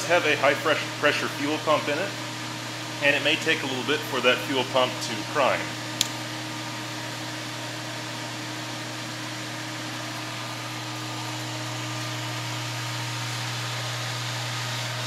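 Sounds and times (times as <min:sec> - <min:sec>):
heater fan motor humming: 0:00.0 - 0:15.0
power switch click: 0:06.0 - 0:06.2.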